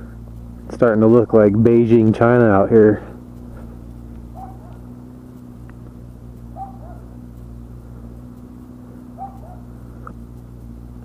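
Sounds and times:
motorcycle engine idling: 0.0s - 11.0s
dog barking: 4.3s - 4.9s, 6.6s - 7.1s, 9.2s - 9.7s.

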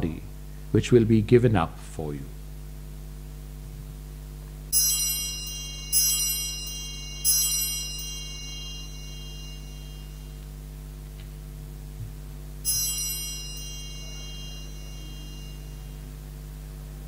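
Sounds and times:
altar bell ringing: 4.7s - 11.0s, 12.6s - 16.4s.

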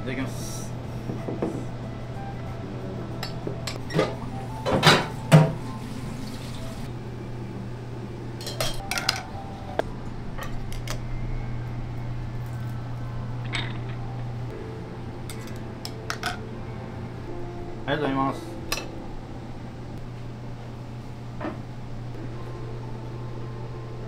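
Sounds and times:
steady low hum: 0.0s - 6.1s, 6.8s - 24.0s
dishes and utensils clattering: 3.2s - 5.7s, 8.4s - 9.3s.

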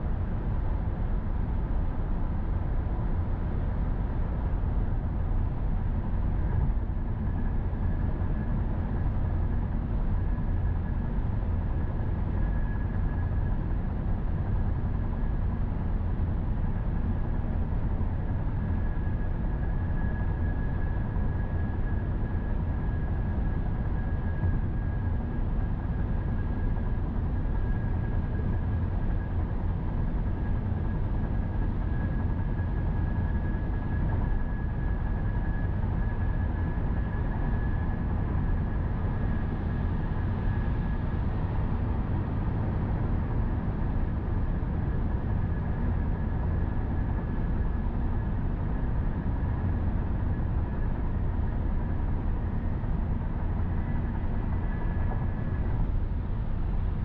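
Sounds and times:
faint high whine: 0.0s - 57.0s.

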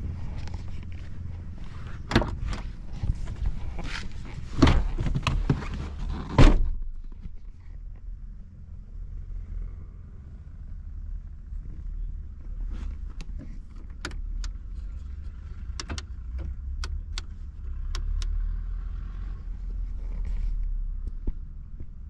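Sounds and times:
car door opening: 1.9s - 7.0s
car door shutting thunk: 6.2s - 6.9s.

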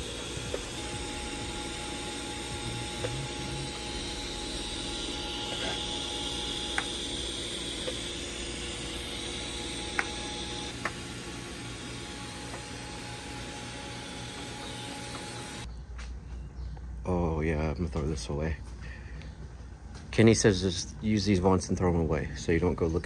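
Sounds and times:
welding arc hissing: 0.0s - 15.7s.

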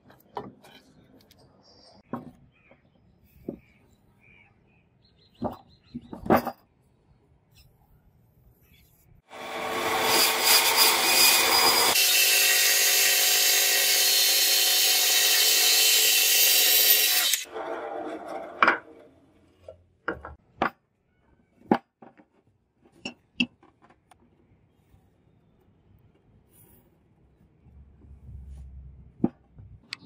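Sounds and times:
bandsaw cutting wood: 9.3s - 18.9s.

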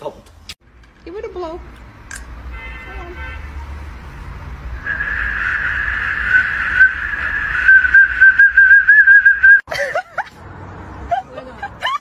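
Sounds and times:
dog blowing metal whistle: 4.8s - 9.6s.

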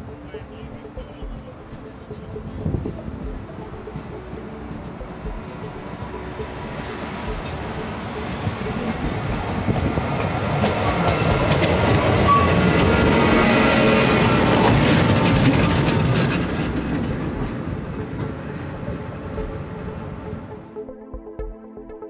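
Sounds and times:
train wheels clattering over rails: 7.4s - 19.5s.

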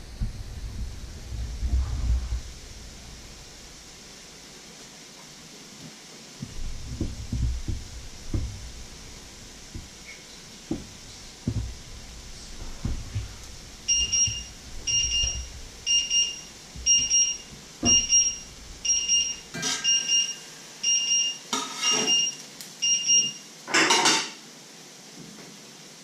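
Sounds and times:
electronic alarm beeping: 12.8s - 23.5s
spatula scraping frying pan: 21.5s - 22.3s.

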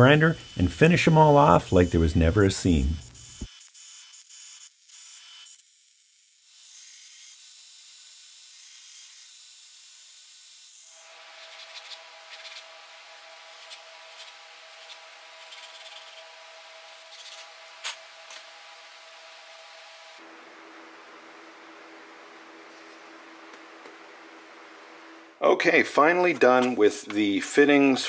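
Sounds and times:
machine hum: 11.0s - 27.2s.

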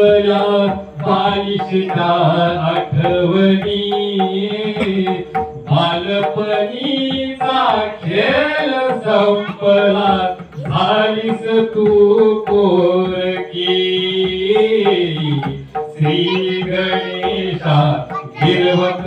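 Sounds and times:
person chanting verses: 0.0s - 19.0s.

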